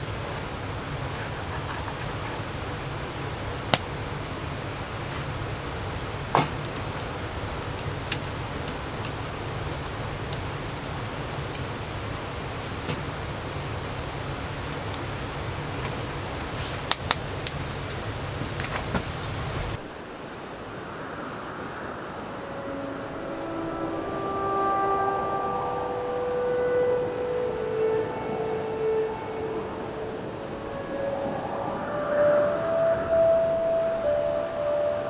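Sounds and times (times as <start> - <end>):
wood fire crackling and popping: 0.0 - 19.8
low rumble: 0.0 - 35.0.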